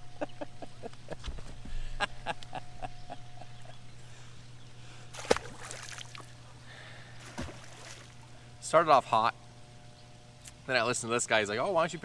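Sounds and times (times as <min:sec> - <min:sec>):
steady low hum: 0:00.0 - 0:12.0
short splash: 0:05.1 - 0:06.3, 0:07.2 - 0:08.2.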